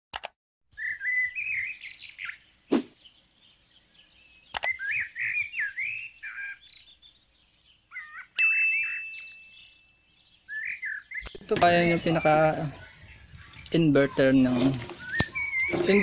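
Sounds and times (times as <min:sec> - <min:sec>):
short whoosh: 0:02.7 - 0:03.0
mouse click: 0:04.5 - 0:04.8
bell ding: 0:08.4 - 0:09.5.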